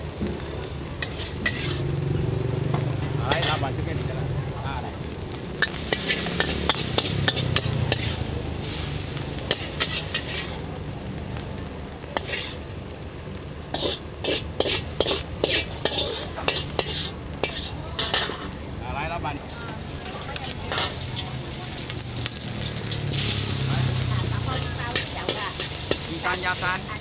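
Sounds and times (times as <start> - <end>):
noodles sizzling: 0.0 - 27.0
metal spatula scraping wok: 0.4 - 2.0, 2.6 - 3.8, 5.0 - 10.7, 12.2 - 12.7, 13.7 - 18.6, 19.4 - 27.0.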